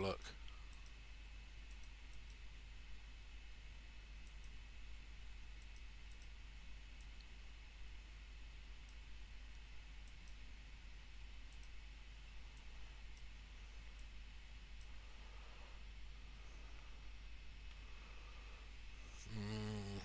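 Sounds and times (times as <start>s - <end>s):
steady low hum and hiss: 0.0s - 20.0s
computer mouse clicks: 0.4s - 1.0s, 1.6s - 2.5s, 4.2s - 4.6s, 5.4s - 6.4s, 7.0s - 7.3s, 8.8s - 10.5s, 11.4s - 11.8s, 12.5s - 14.2s.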